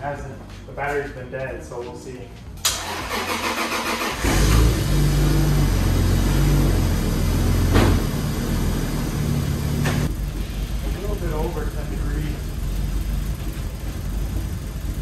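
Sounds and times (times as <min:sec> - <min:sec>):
sharp engine cracks: 0:02.6 - 0:04.8
car engine cranking and running: 0:02.6 - 0:15.0.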